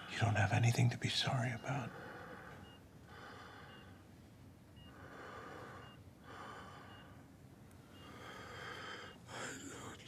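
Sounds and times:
man breathing laboriously: 1.9 - 4.1, 4.8 - 10.0.

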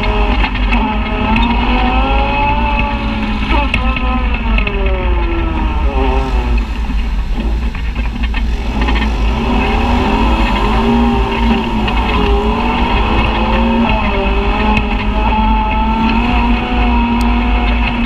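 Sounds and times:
utility vehicle engine running: 0.0 - 18.0.

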